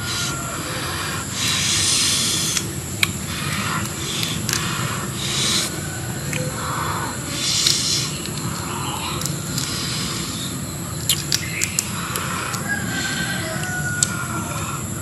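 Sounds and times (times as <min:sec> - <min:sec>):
lobster shells crackling: 0:01.4 - 0:06.6
shell snapping: 0:11.1 - 0:12.7.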